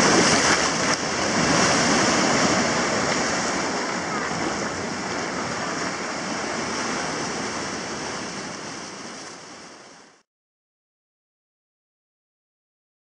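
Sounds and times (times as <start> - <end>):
surf breaking on a beach: 0.0 - 10.2.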